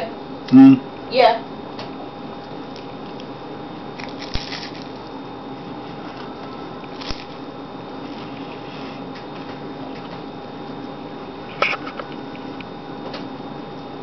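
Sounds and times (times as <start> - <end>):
room hum: 0.0 - 14.0
man chewing sandwich: 2.3 - 12.8.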